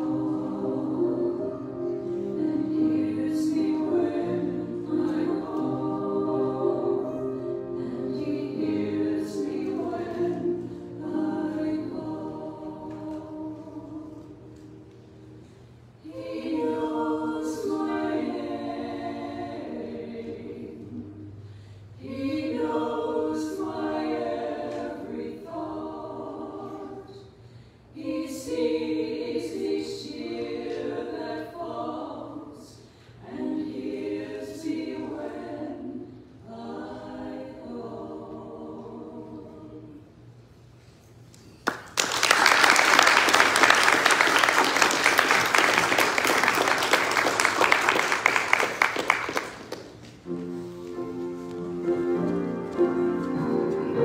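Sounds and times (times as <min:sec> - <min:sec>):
two women singing: 0:22.0 - 0:27.2, 0:52.2 - 0:54.0
audience applause: 0:41.6 - 0:49.9.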